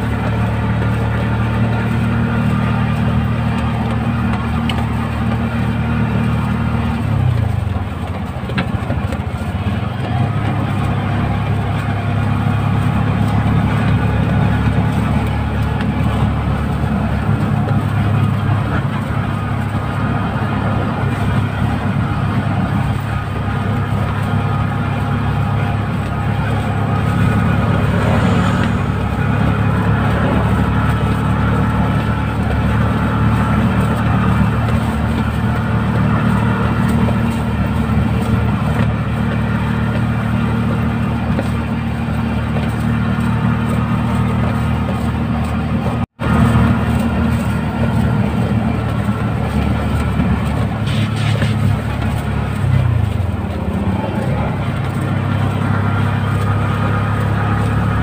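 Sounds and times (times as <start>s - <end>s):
auto-rickshaw engine droning: 0.0s - 58.0s.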